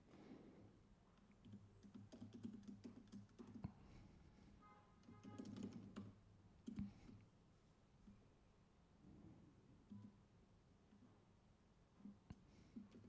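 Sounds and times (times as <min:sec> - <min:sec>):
typing on keyboard: 0:01.4 - 0:03.7, 0:05.0 - 0:07.2, 0:12.7 - 0:13.0.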